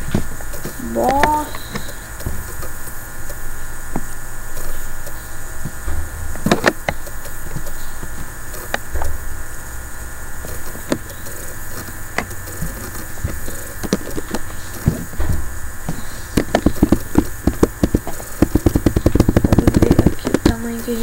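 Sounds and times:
electrical hum and low rumble: 0.0s - 21.0s
computer mouse clicking: 16.4s - 20.9s.

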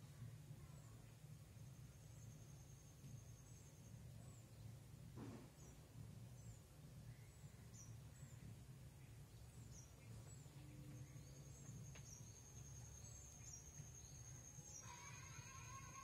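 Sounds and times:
steady low hum: 0.0s - 16.0s
faint high-pitched chirps: 6.4s - 16.0s.

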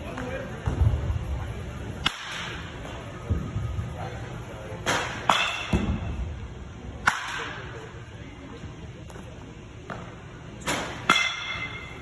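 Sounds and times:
baseball bat crack: 1.9s - 2.7s, 7.0s - 7.7s, 9.9s - 11.9s.

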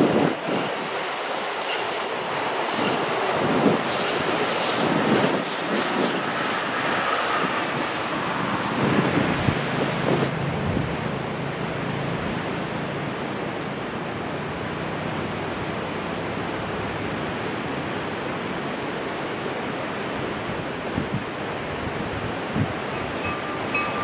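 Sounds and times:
wind on microphone: 0.0s - 1.1s, 2.3s - 11.2s, 20.5s - 24.0s
ocean surf breaking: 0.0s - 24.0s.

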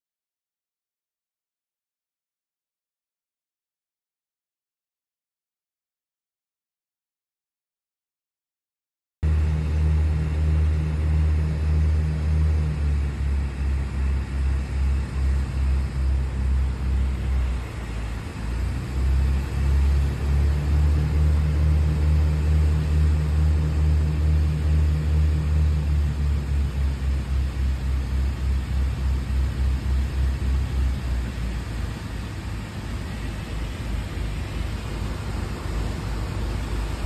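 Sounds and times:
propeller aircraft engine droning: 9.2s - 37.0s.

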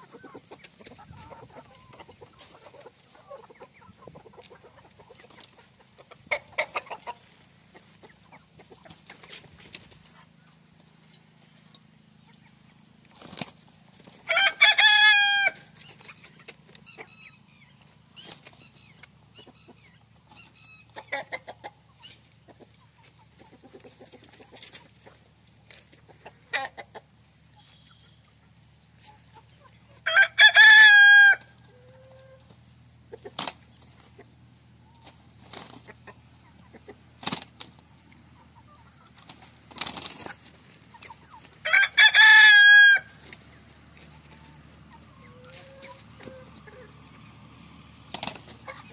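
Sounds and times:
hens clucking: 0.0s - 48.9s
roosters crowing: 12.3s - 22.1s, 29.5s - 34.2s, 38.4s - 48.9s.

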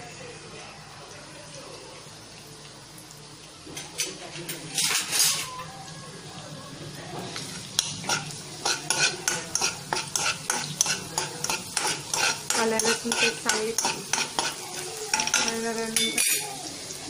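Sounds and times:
metal spatula scraping pan: 4.8s - 5.5s, 7.8s - 16.5s
paste sizzling in oil: 6.9s - 17.0s.

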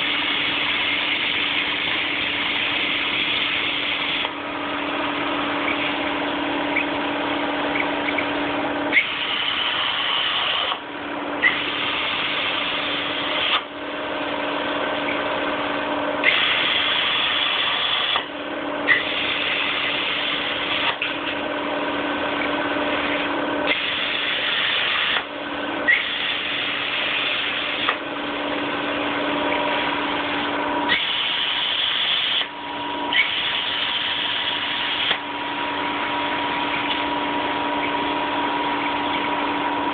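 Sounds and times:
steady hum: 0.0s - 39.9s
plasma torch hissing: 30.9s - 32.5s.

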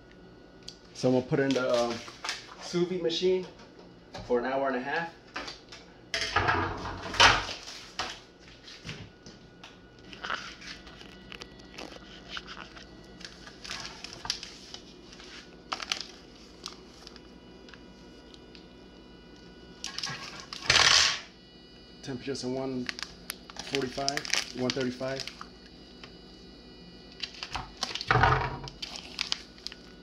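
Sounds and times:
faint steady whine: 0.0s - 30.0s
plastic bag crinkling: 10.0s - 17.3s, 22.8s - 25.5s, 27.2s - 28.1s, 28.7s - 30.0s.

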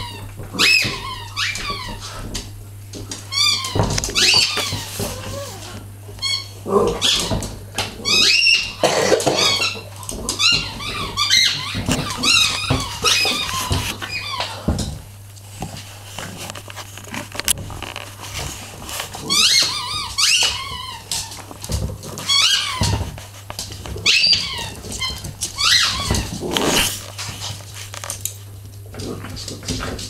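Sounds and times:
dogs squeaking: 0.0s - 2.3s, 3.2s - 14.7s, 19.2s - 23.2s, 23.9s - 27.0s.

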